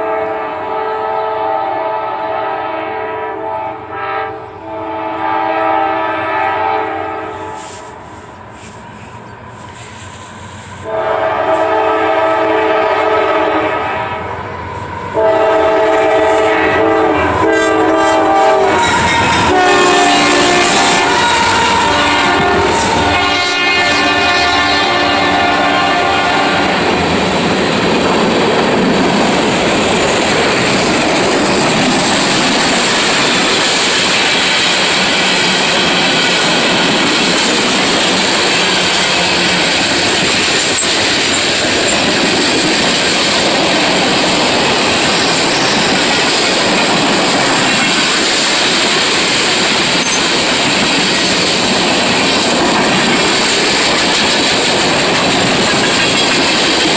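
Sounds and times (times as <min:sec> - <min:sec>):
train horn: 0:00.0 - 0:08.0, 0:10.8 - 0:26.9, 0:38.3 - 0:40.3
train wheels clickety-clack: 0:08.6 - 0:56.9.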